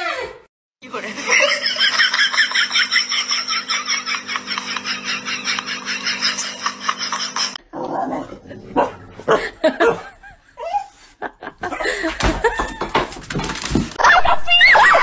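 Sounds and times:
dog barking and yelping: 0:08.6 - 0:11.0.

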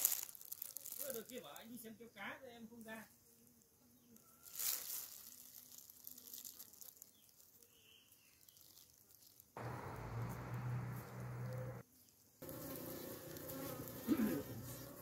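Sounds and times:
brief crackle: 0:00.0 - 0:01.6, 0:04.2 - 0:07.6, 0:08.2 - 0:11.8
honeybees buzzing: 0:09.6 - 0:11.8, 0:12.4 - 0:15.0.

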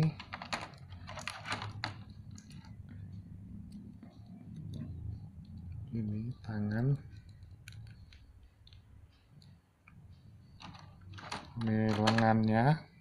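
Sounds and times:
plastic figure pieces clicking: 0:10.6 - 0:12.4.

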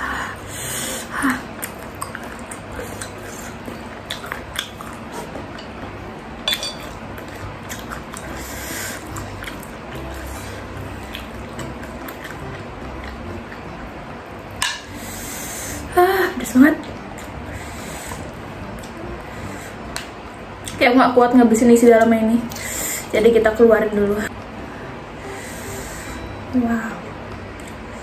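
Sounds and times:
electric fan running: 0:00.0 - 0:28.0
metal spoon clinking against bowl: 0:06.5 - 0:07.0.

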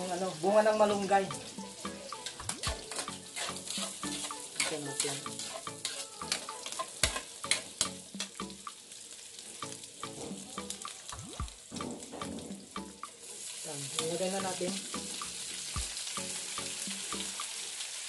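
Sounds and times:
food sizzling in hot oil: 0:00.0 - 0:18.0
metal spatula clanking on wok: 0:02.2 - 0:08.4.

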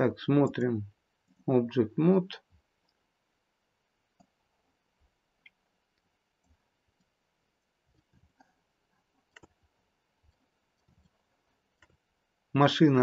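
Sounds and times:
computer mouse clicks: 0:04.2 - 0:04.4, 0:09.2 - 0:09.6, 0:11.8 - 0:12.0.

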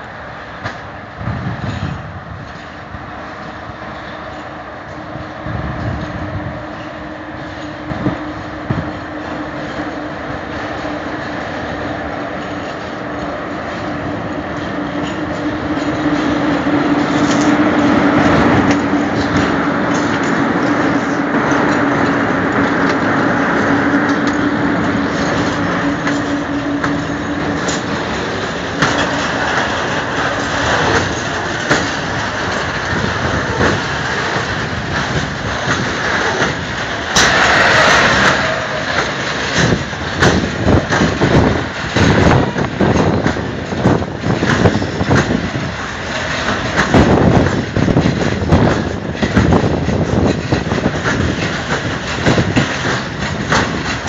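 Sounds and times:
electric locomotive humming: 0:00.0 - 0:54.0
loud rushing noise: 0:12.8 - 0:54.0.

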